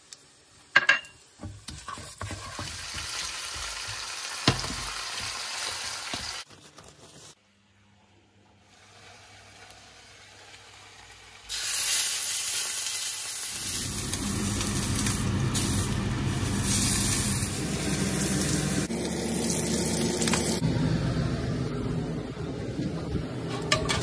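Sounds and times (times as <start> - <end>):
meat sizzling in a frying pan: 2.3 - 6.4, 9.0 - 20.6
steady low hum: 13.7 - 23.7.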